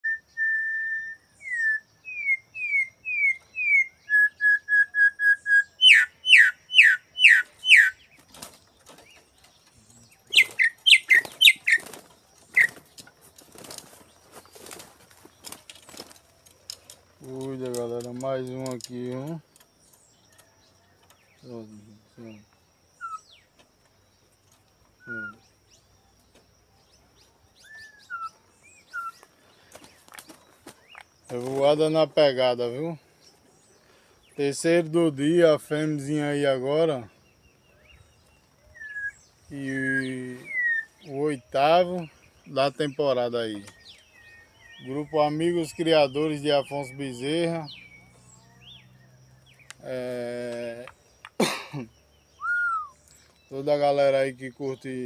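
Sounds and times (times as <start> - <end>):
bird whistled call notes: 0.0 - 8.1, 10.0 - 11.9, 23.0 - 23.5, 25.0 - 25.6, 27.5 - 29.3, 37.8 - 41.2, 52.3 - 53.3
birds singing whistled notes: 0.0 - 55.0
wings flapping against wire cage: 8.1 - 9.6, 10.2 - 18.8
scuffling on cage: 8.2 - 18.8, 28.9 - 31.8.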